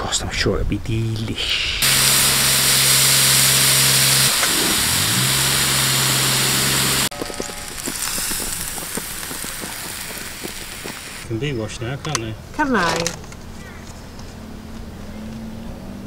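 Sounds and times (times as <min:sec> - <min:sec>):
sausages sizzling on a griddle: 0:01.8 - 0:11.3
steady low hum: 0:01.8 - 0:11.4.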